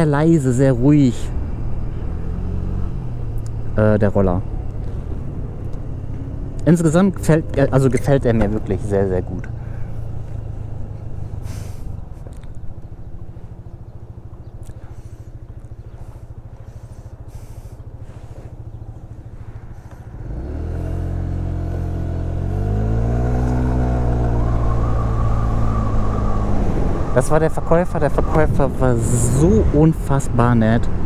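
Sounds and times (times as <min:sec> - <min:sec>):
scooter engine accelerating: 0:08.0 - 0:27.2, 0:28.7 - 0:31.0.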